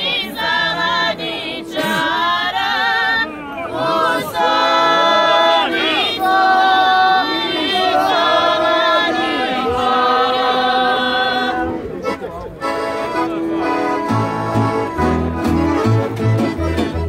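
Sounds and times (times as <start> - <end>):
group singing without instruments: 0.0 - 11.8.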